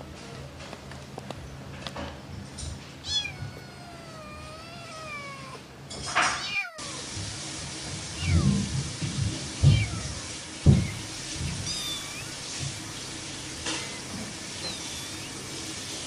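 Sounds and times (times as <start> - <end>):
cat meowing: 3.0 - 7.2, 8.1 - 8.7, 9.6 - 12.6, 13.6 - 15.6.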